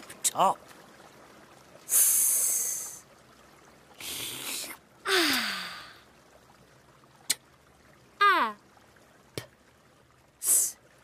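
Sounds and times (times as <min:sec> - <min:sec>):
breathy ahh of satisfaction: 0:05.1 - 0:06.0.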